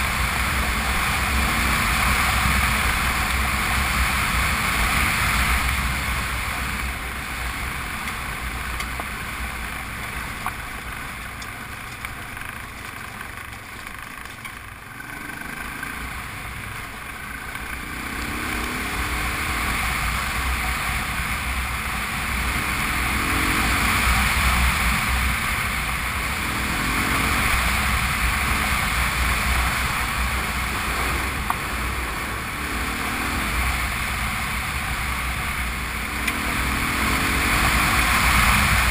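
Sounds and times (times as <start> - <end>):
motorcycle engine running: 0.0 - 38.9
tyres on gravel: 0.1 - 20.6.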